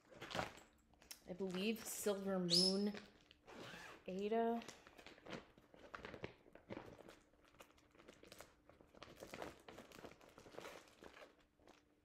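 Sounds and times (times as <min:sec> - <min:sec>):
faint crinkling: 0:04.1 - 0:12.0.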